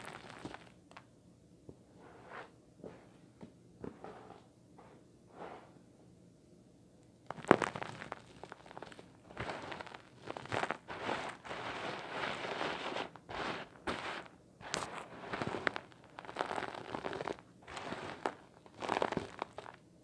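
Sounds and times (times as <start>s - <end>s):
stones rattling in a plastic tray: 15.4s - 19.8s.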